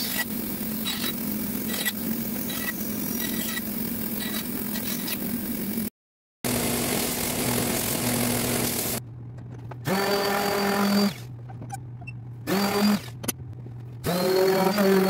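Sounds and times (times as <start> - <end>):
orbital sander whirring: 14.0 - 15.0.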